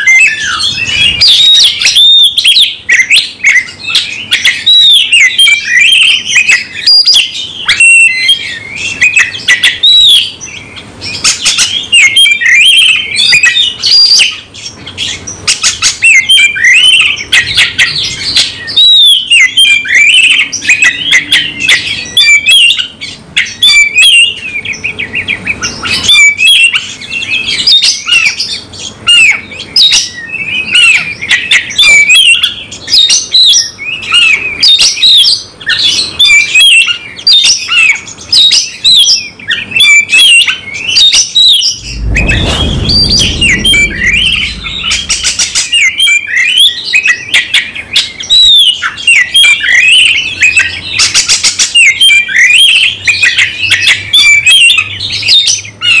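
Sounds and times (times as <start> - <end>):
bird singing loudly: 0.0 - 56.0.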